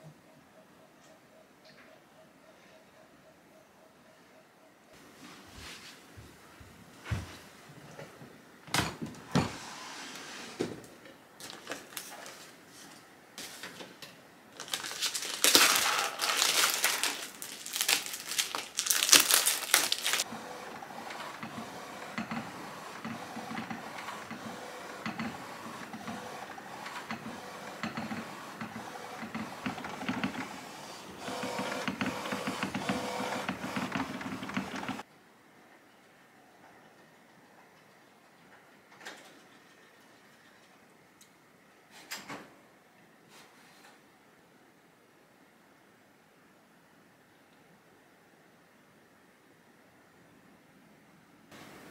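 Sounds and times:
rustling and clattering: 14.6s - 20.2s
inkjet printer whirring: 20.2s - 35.0s.

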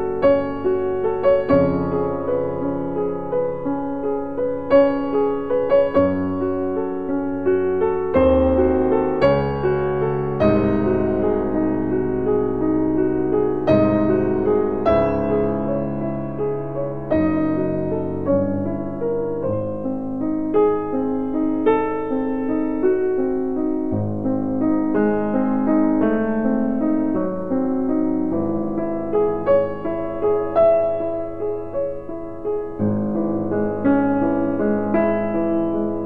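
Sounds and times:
solo piano classical piece: 0.0s - 36.0s.

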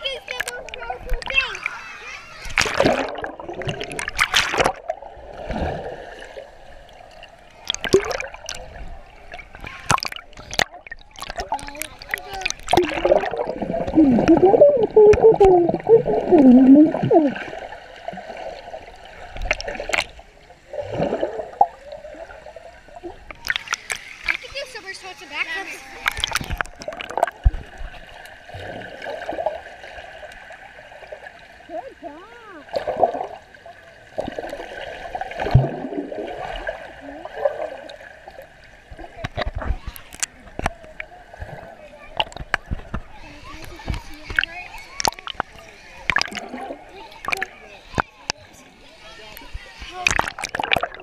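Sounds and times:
underwater swishing and bubbling: 0.0s - 51.0s
girl humming underwater: 12.8s - 17.6s
dull underwater knocks: 38.9s - 46.6s.

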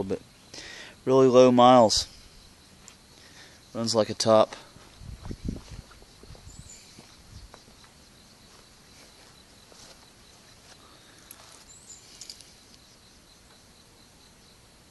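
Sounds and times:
insects chirping: 0.0s - 14.9s
footsteps: 4.7s - 12.6s.

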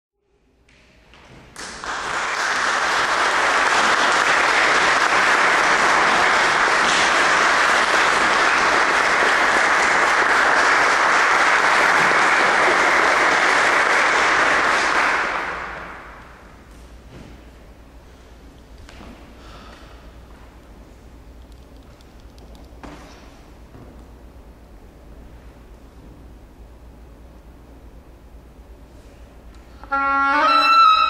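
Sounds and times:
audience applauding: 1.2s - 16.5s.

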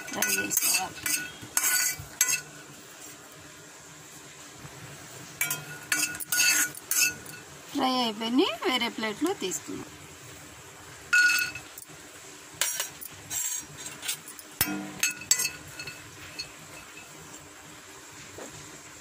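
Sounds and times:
cookware clinking against pan: 0.0s - 2.6s, 5.4s - 7.5s, 11.1s - 11.9s, 12.6s - 17.2s.

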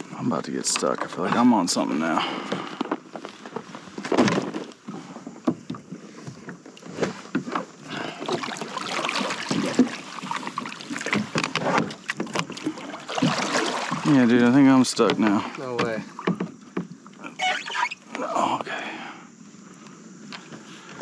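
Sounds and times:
water lapping at hull: 1.2s - 18.1s
plastic kayak knocking: 9.2s - 14.2s, 15.0s - 17.0s.

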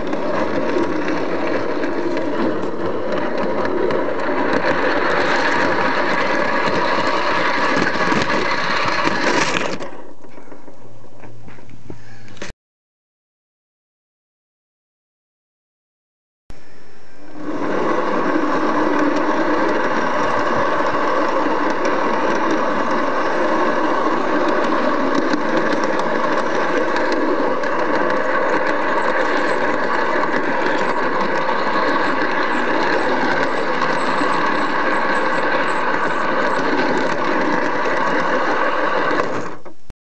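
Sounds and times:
model train motor hum: 0.0s - 10.4s, 16.6s - 39.8s
train wheel rattle: 0.0s - 11.4s, 17.2s - 39.8s.

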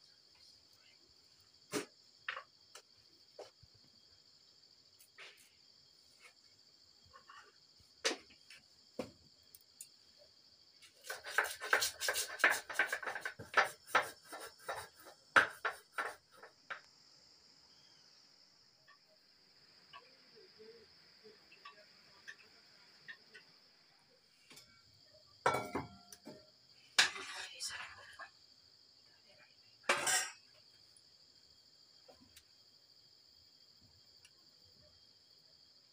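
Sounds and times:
crickets chirring: 0.0s - 35.9s
kitchen utensils clinking: 29.9s - 30.4s.

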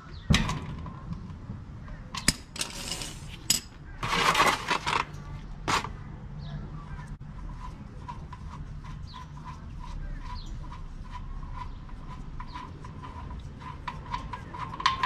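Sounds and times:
plastic pan scraping on floor: 4.0s - 5.1s.

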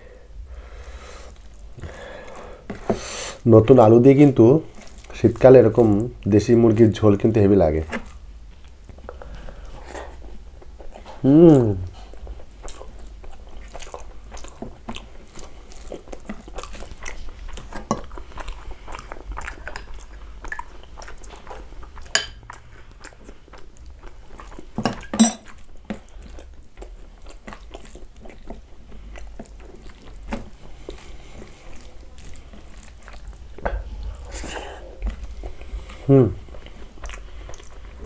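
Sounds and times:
rice mixed by hand and chewed: 0.3s - 38.0s
metal spoon clinking glass bowl: 22.2s - 22.4s, 24.9s - 25.5s.

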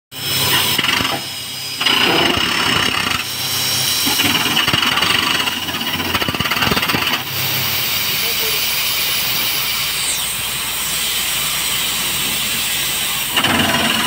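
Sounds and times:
rock drill hammering into stone: 0.3s - 8.2s, 11.0s - 14.0s
steady high hiss: 7.2s - 13.9s.

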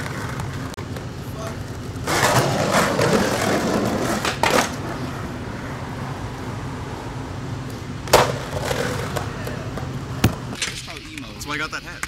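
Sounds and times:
skateboard wheels rolling on concrete: 0.0s - 12.0s
skateboard landing clack: 8.1s - 9.3s.

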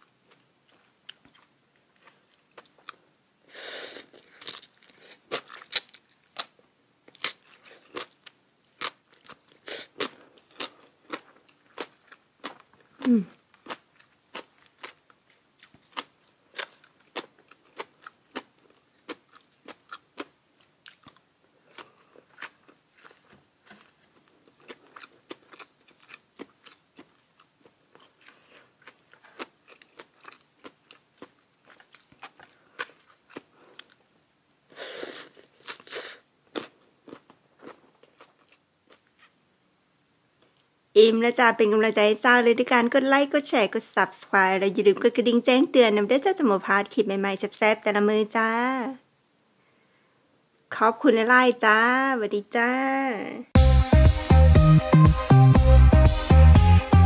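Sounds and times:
person chewing crisp food: 0.2s - 3.0s, 3.8s - 34.1s, 34.7s - 39.4s.

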